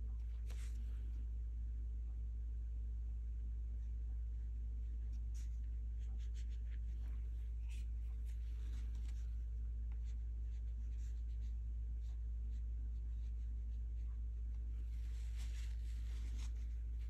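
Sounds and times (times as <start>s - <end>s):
steady low hum: 0.0s - 17.0s
brush strokes on paper: 5.0s - 17.0s.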